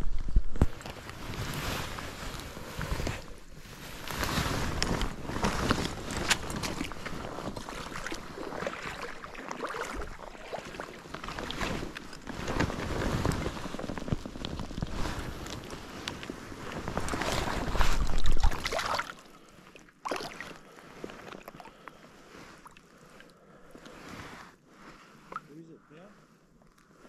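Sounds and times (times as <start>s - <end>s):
clothing rustle: 0.0s - 27.0s
light water splashing: 7.4s - 12.1s, 17.1s - 22.0s.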